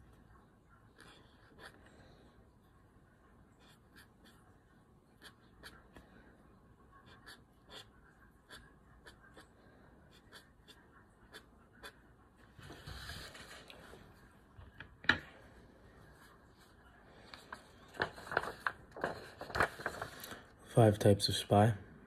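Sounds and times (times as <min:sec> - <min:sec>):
pen scratching on paper: 0:00.9 - 0:01.9, 0:03.6 - 0:06.0, 0:06.9 - 0:12.1
paper rustle: 0:12.6 - 0:14.0, 0:16.5 - 0:20.5.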